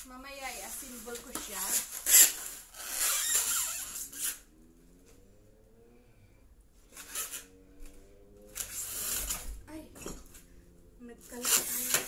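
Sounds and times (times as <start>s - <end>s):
plastic wrapping rustling: 0.0s - 4.4s, 8.5s - 9.6s, 11.2s - 12.0s.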